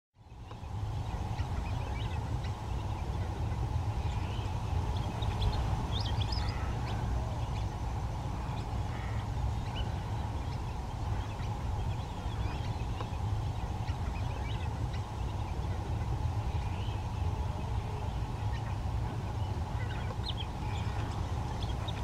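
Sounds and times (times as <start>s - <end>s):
steady low rumble: 0.2s - 22.0s
short high bird calls: 5.4s - 7.6s.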